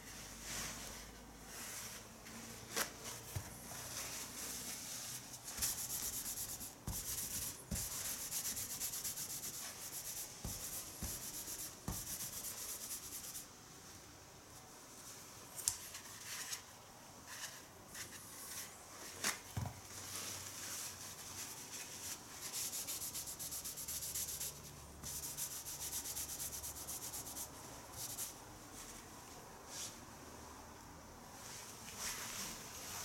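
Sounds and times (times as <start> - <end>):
tissue scrubbing on straw mat: 0.0 - 13.4.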